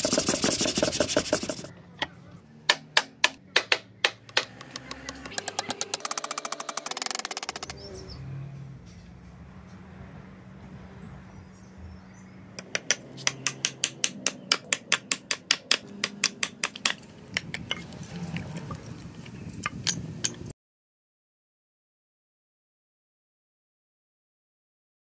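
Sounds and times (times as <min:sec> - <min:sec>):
hammer driving nail into wood: 0:02.7 - 0:05.2, 0:12.6 - 0:17.0.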